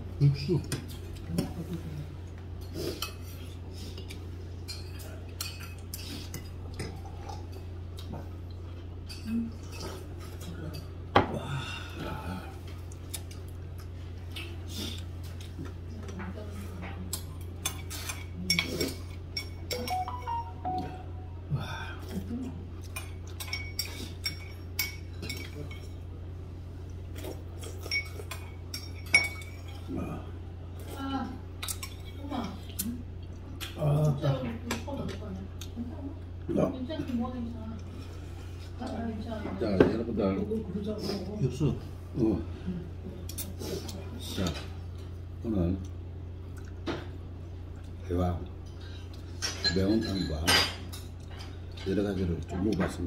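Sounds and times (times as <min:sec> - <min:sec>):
steady low hum: 0:00.0 - 0:49.7
cutlery and dishes clinking: 0:17.1 - 0:20.5, 0:49.3 - 0:52.0
cutlery clinking against dishes: 0:17.1 - 0:20.8, 0:22.8 - 0:26.0, 0:27.2 - 0:29.8, 0:49.3 - 0:53.0
low hum: 0:19.7 - 0:22.6.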